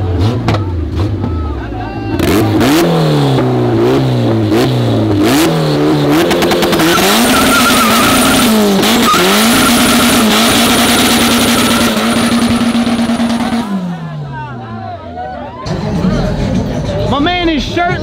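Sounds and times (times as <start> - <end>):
car engine revving: 0.0 - 14.6
tyres squealing in burnout: 6.7 - 12.7.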